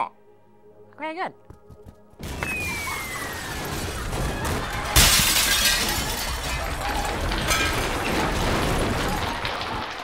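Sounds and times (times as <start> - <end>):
glass shattering: 2.2 - 10.0
tinkling glass debris: 2.3 - 10.0.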